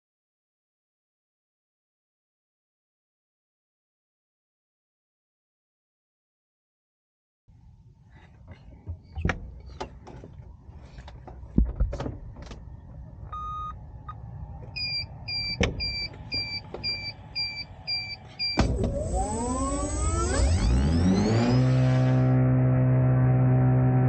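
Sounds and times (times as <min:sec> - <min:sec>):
short electronic beeps: 0:13.4 - 0:13.8, 0:14.8 - 0:18.6
electric motor whine: 0:16.0 - 0:24.0.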